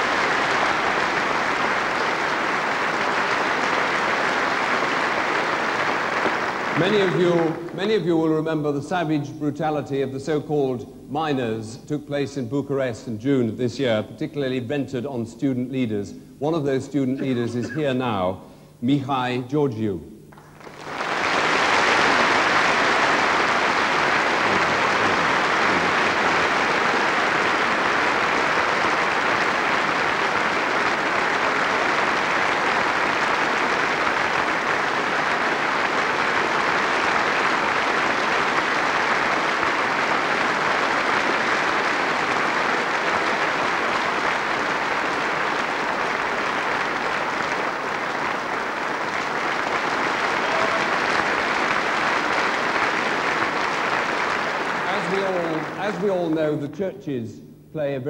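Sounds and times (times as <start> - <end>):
large audience applauding: 0.0 - 8.4, 20.3 - 56.4.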